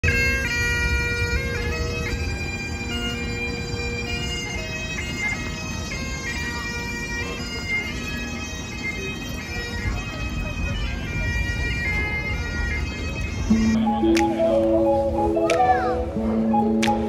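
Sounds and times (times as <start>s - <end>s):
bagpipe-like melody with drone: 0.0s - 17.0s.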